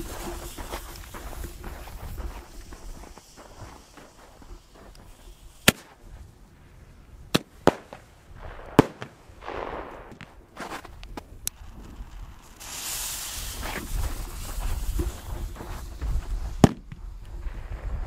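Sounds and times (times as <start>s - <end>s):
firecracker bangs: 7.3s - 18.0s.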